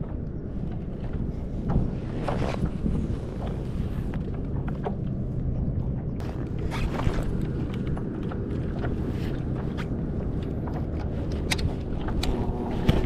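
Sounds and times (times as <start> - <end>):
water lapping against kayak hull: 0.0 - 13.0
wind rumble on microphone: 0.0 - 13.0.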